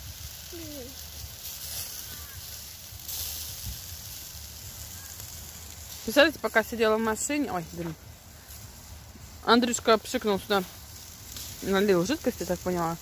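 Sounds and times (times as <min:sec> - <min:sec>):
meat sizzling on a grill: 0:00.0 - 0:13.0
faint voices: 0:00.4 - 0:02.7
wind rumble on microphone: 0:02.4 - 0:05.2.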